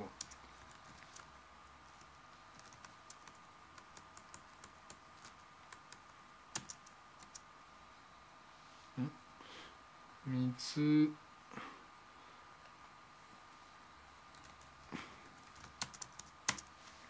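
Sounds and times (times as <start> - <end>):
typing on computer keyboard: 0.2 - 1.3, 2.5 - 7.4, 14.3 - 14.7, 15.4 - 16.7.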